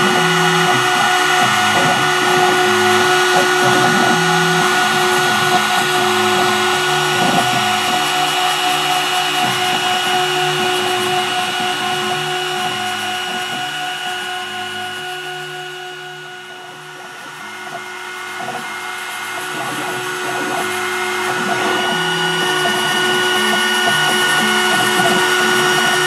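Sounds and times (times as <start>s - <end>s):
axis motors humming: 0.0s - 26.0s
cnc router spindle whine: 0.0s - 26.0s.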